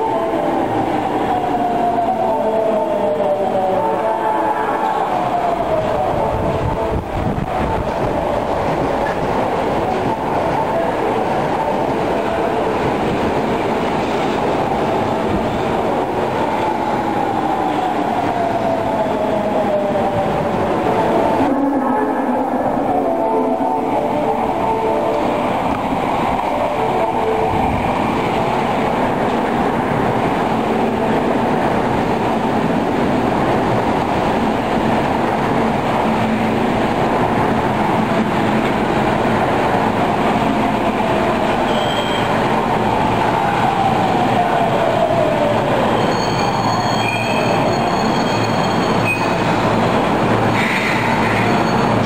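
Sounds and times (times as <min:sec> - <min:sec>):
train wheels rumbling on rail: 0:00.0 - 0:52.0
high brake squeals: 0:41.6 - 0:42.4, 0:45.9 - 0:49.5, 0:50.6 - 0:52.0.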